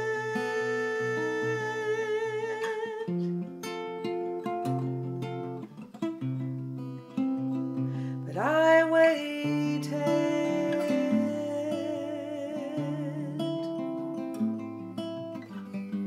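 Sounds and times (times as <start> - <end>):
woman singing a held note: 0.0 - 3.1
fingerpicked acoustic guitar: 0.0 - 16.0.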